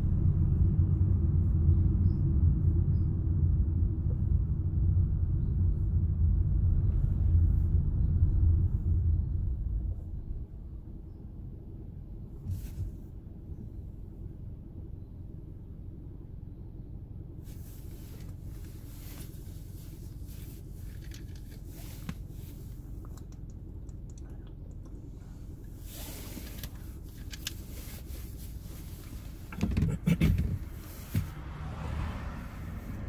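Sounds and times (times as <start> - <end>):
loud burst of low rumbling: 0.0 - 16.5
car rumbling inside cabin: 0.0 - 33.0.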